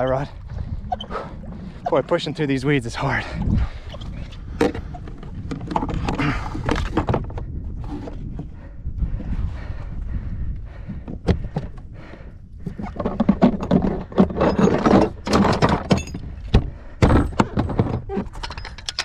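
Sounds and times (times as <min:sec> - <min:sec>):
rustling and rattling clatter: 0:03.2 - 0:08.8, 0:10.7 - 0:19.0.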